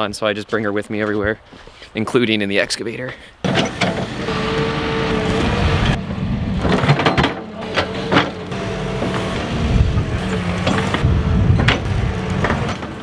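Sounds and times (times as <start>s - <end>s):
excavator diesel engine running: 3.5s - 13.0s
held whine: 3.5s - 13.0s
sharp knocks: 11.6s - 13.0s.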